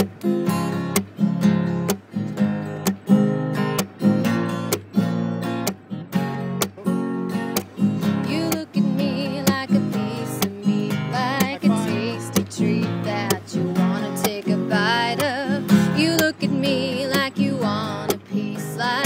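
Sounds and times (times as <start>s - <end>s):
acoustic guitar strumming: 0.0s - 19.0s.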